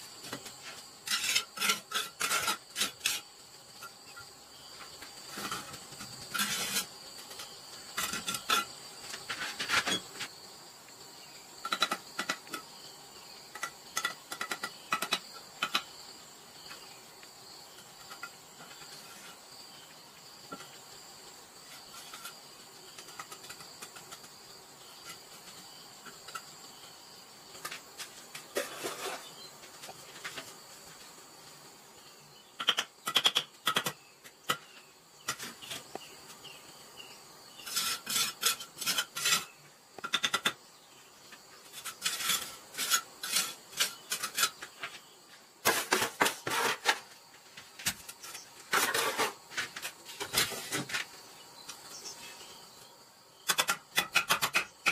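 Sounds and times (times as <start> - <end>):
insects chirping: 0.0 - 54.9
bricks and mortar clinking and scraping: 0.3 - 4.3, 7.9 - 10.1, 11.6 - 12.7, 13.5 - 15.9, 28.5 - 29.3, 37.6 - 40.6, 41.7 - 45.0, 45.6 - 47.1, 48.1 - 51.0.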